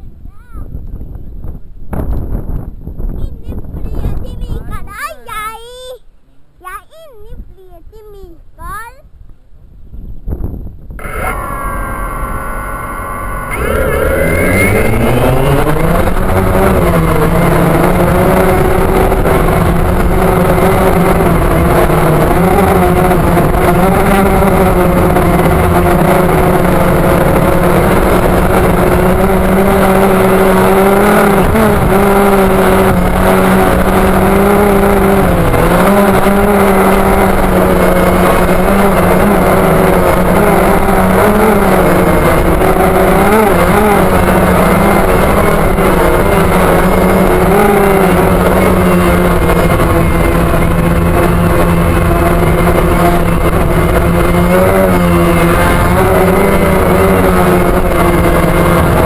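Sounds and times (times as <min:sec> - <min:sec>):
drone propellers whining: 0:10.9 - 0:59.0.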